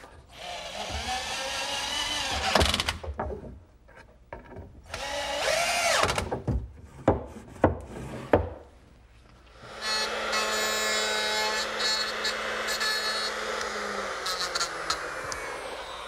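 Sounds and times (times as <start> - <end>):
power drill motor whining: 9.6 - 16.0.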